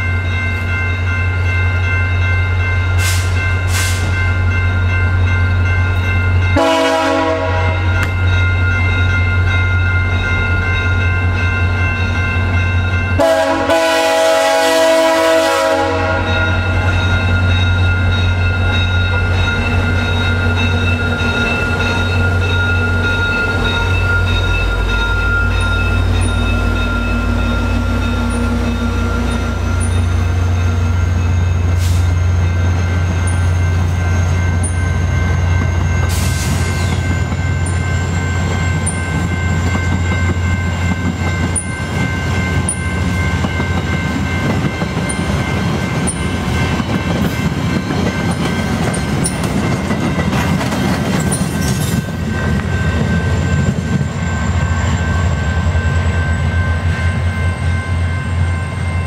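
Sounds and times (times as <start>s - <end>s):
crossing bell ringing: 0.0s - 59.0s
diesel locomotive humming: 0.0s - 59.0s
train horn blast: 6.6s - 8.1s, 13.2s - 16.8s.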